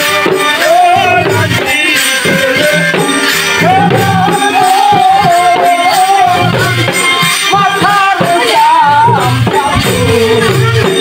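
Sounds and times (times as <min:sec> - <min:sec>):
folk dance music with singing: 0:00.0 - 0:11.0
rattling percussion: 0:00.0 - 0:11.0.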